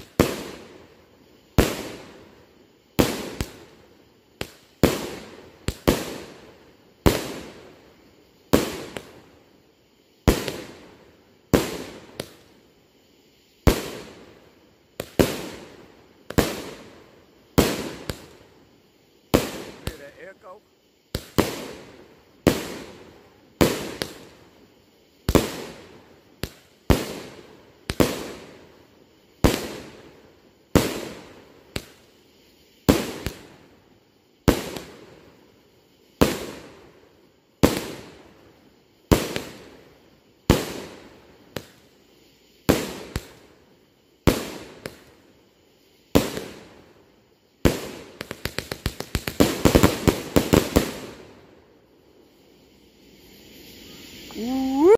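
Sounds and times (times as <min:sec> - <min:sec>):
rapid firework pops: 0:00.0 - 0:00.9, 0:01.5 - 0:07.8, 0:08.5 - 0:09.3, 0:10.2 - 0:10.9, 0:11.5 - 0:12.6, 0:13.6 - 0:18.4, 0:19.3 - 0:20.3, 0:21.1 - 0:24.4, 0:25.2 - 0:28.7, 0:29.4 - 0:32.2, 0:32.8 - 0:33.7, 0:34.4 - 0:35.3, 0:36.1 - 0:37.0, 0:37.6 - 0:38.3, 0:39.0 - 0:39.8, 0:40.4 - 0:42.0, 0:42.6 - 0:43.6, 0:44.2 - 0:45.3, 0:46.1 - 0:46.9, 0:47.6 - 0:51.4
firework bangs with echo: 0:21.1 - 0:23.0.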